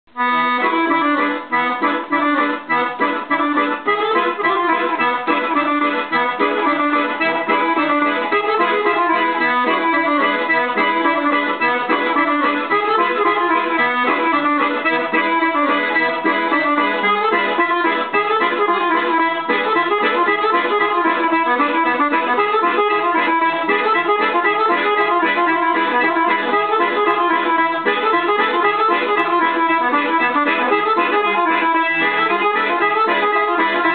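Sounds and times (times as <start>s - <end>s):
accordion playing fast dance tune: 0.1s - 33.9s.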